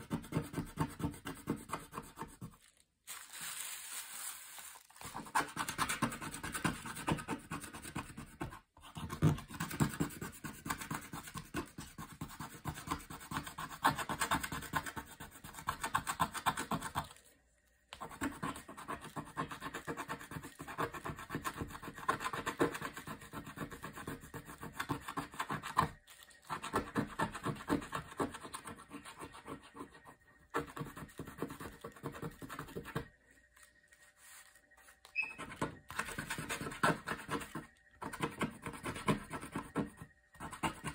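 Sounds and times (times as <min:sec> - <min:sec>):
tool scratching a board: 0:00.0 - 0:02.5, 0:05.2 - 0:17.0, 0:18.0 - 0:25.9, 0:35.2 - 0:40.9.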